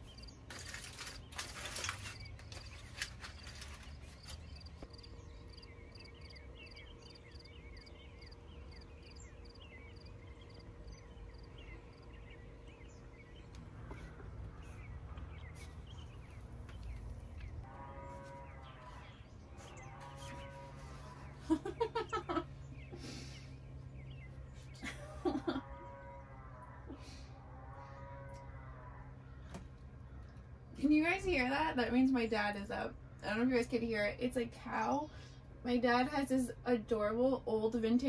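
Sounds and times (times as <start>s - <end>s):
high repeating animal chirp: 4.9s - 13.4s.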